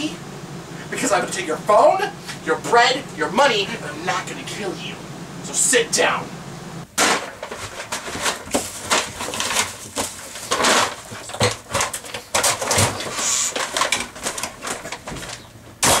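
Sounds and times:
dull knocks and bumps: 6.9 - 16.0
plastic bags crinkling: 7.3 - 15.5.

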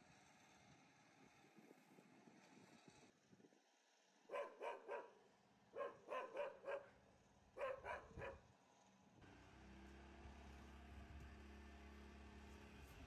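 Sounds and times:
dog barking: 4.3 - 7.0, 7.6 - 8.5.

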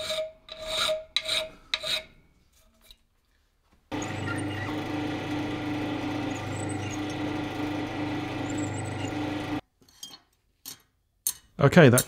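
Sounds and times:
drill press motor hum: 3.9 - 9.6.

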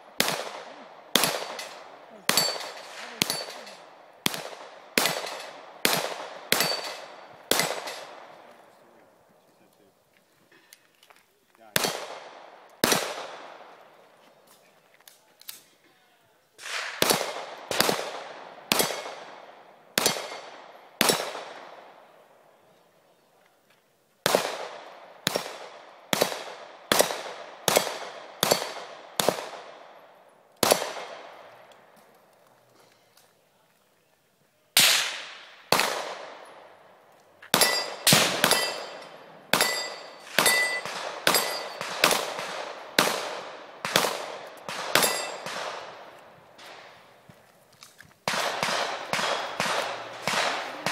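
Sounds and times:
handgun shots echoing: 0.1 - 8.4, 11.8 - 13.7, 16.6 - 19.3, 20.0 - 21.8, 24.2 - 30.0, 30.6 - 31.8, 34.8 - 36.8, 37.4 - 47.0, 48.2 - 50.9
handgun shots: 0.2 - 8.2, 37.5 - 46.9
steel plate ringing: 37.6 - 41.8, 45.0 - 45.4.

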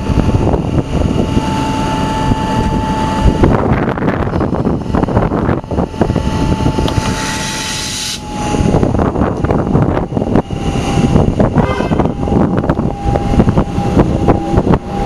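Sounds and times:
electric train whine and rumble: 0.0 - 15.0
wind on microphone: 0.0 - 15.0
hiss of air from doors: 6.9 - 8.2.

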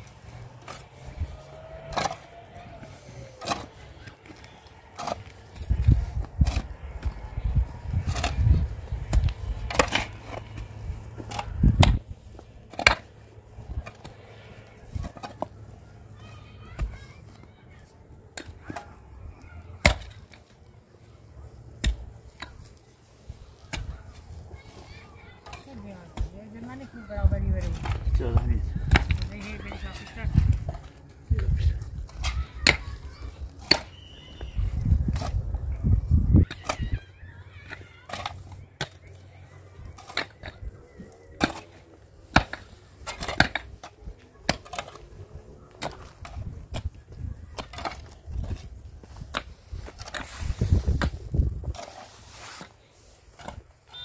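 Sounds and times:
shovel scraping stony soil: 0.0 - 17.2, 47.5 - 54.0.

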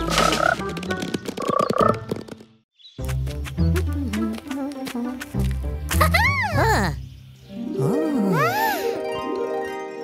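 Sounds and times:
background music with ticking beat: 3.0 - 6.2.

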